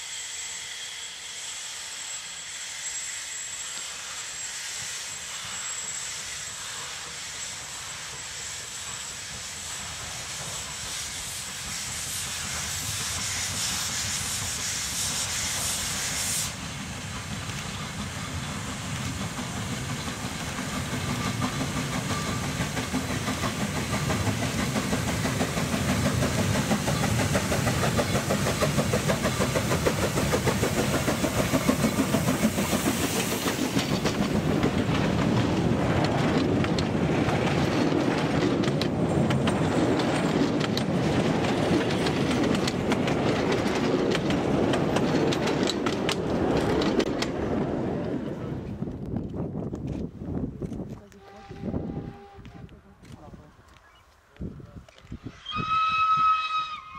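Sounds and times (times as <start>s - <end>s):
steam locomotive exhaust beats: 0.0s - 56.9s
wagons clickety-clack over rail joints: 16.8s - 51.4s.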